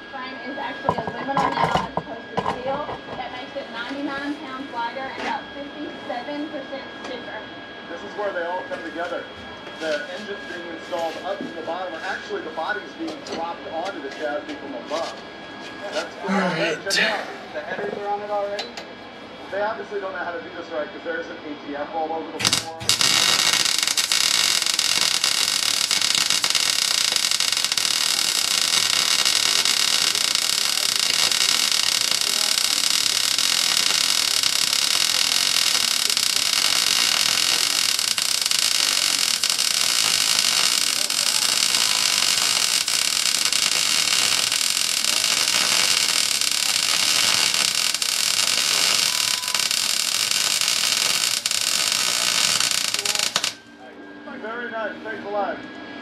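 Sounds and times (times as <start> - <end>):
welder arc crackling hiss: 22.4 - 53.6.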